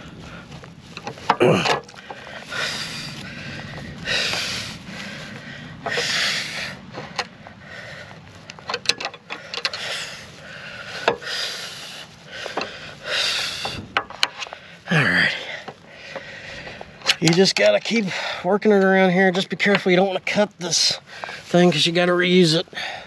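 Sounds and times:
sharp metal clicks: 8.5s - 9.9s, 16.8s - 18.0s.

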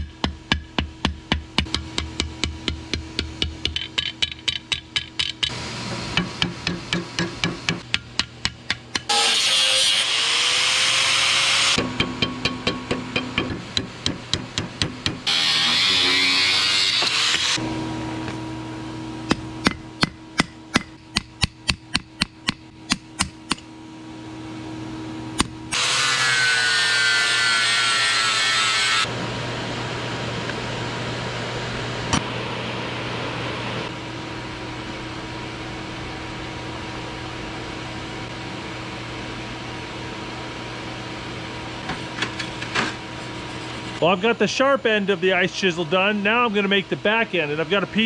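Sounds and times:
hammer striking steel on anvil: 0.0s - 10.0s, 11.8s - 17.4s, 19.2s - 23.7s
steady machine hum: 0.0s - 48.0s.

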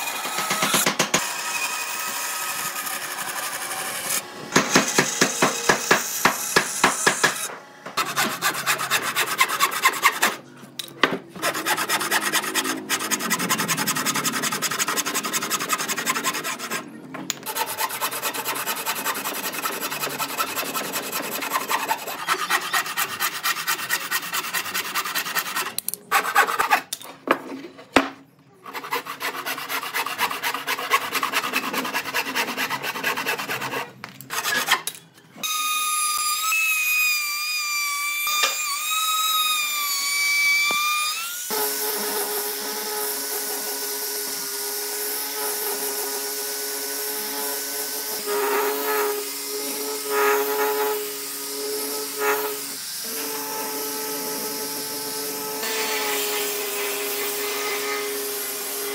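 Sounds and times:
tool scraping wood: 2.7s - 10.5s, 11.3s - 28.0s, 28.6s - 34.9s.

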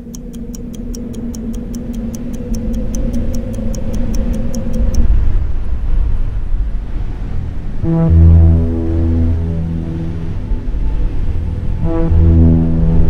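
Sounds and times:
fast clock ticking: 0.0s - 5.1s
deep rumble: 0.0s - 13.0s
steady low hum: 0.0s - 13.0s.

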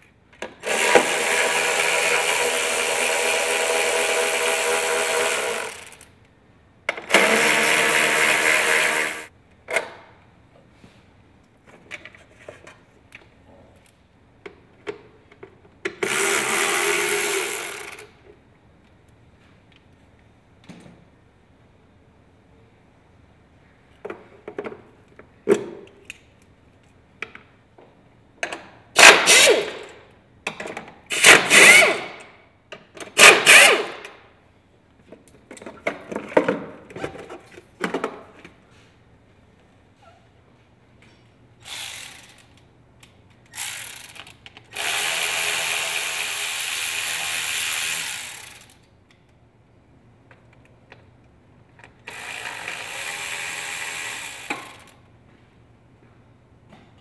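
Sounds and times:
power tool running: 0.6s - 5.9s, 7.1s - 9.3s, 16.0s - 18.0s, 31.1s - 32.0s.

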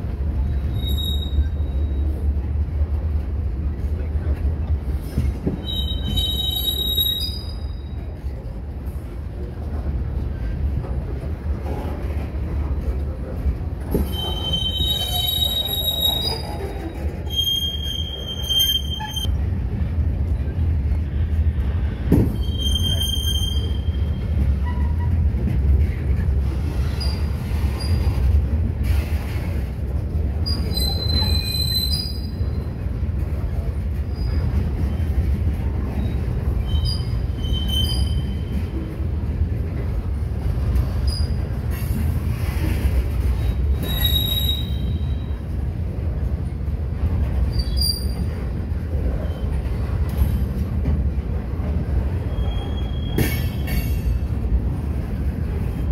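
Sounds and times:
train wheels rumbling on rail: 0.0s - 55.9s
high-pitched wheel squeals: 0.7s - 2.0s, 5.6s - 7.9s, 14.1s - 19.3s, 22.3s - 25.1s, 30.4s - 32.6s, 36.6s - 38.6s, 43.8s - 45.3s, 52.2s - 54.1s.

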